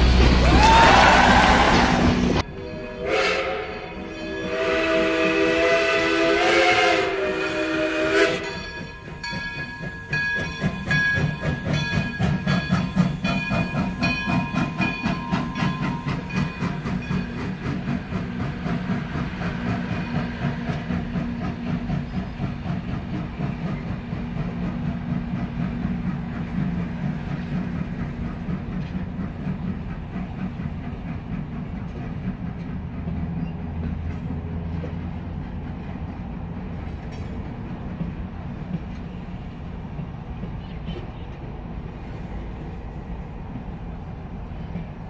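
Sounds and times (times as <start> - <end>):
steam locomotive whistle: 0.1 - 9.0
train wheels clicking over rail joints: 3.7 - 45.0.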